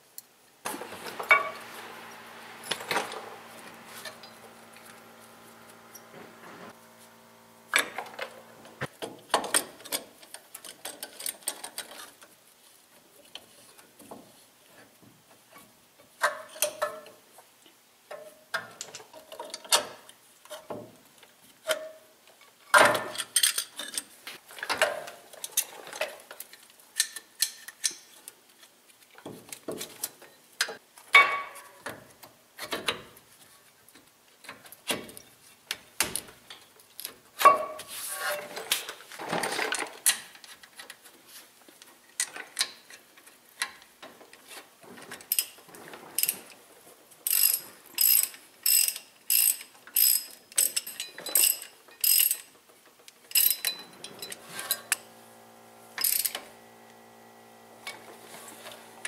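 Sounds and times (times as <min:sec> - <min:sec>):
ratchet wrench clicking: 0:47.3 - 0:52.4, 0:53.3 - 0:53.8, 0:56.0 - 0:56.5
metal tools clinking and scraping: 0:53.3 - 0:55.0.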